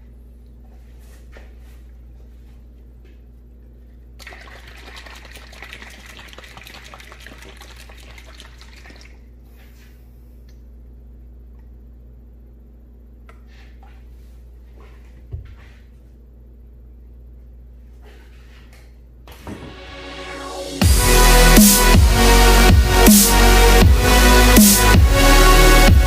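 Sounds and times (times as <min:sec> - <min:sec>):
low electrical hum: 0:00.0 - 0:21.2
liquid sloshing in a bottle: 0:04.2 - 0:09.3.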